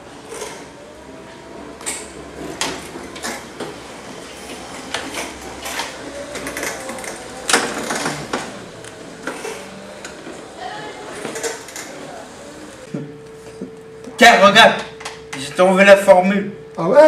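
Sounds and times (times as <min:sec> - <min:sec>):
faint motor whine: 0:00.0 - 0:17.0
wheelchair clicks and knocks: 0:01.8 - 0:10.5, 0:11.1 - 0:12.0.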